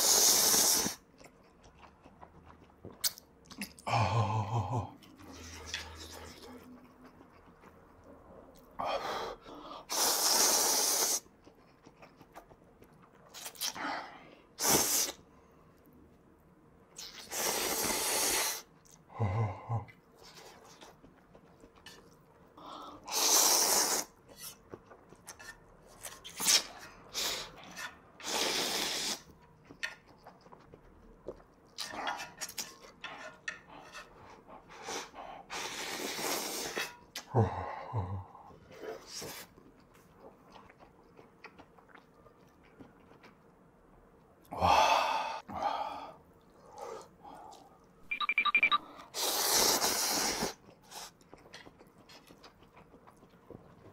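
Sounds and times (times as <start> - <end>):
noodles slurping: 0.0 - 3.8, 9.8 - 13.8, 23.0 - 25.4
chewing: 0.8 - 3.9, 4.9 - 8.8, 10.9 - 13.8, 19.8 - 28.1, 29.0 - 37.3, 38.3 - 43.7, 50.4 - 53.9.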